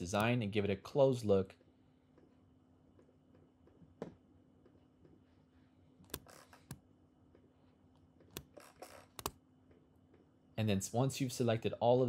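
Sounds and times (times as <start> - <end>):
faint steady hum: 0.0 - 12.0
computer mouse clicks: 6.1 - 6.8, 8.3 - 9.4.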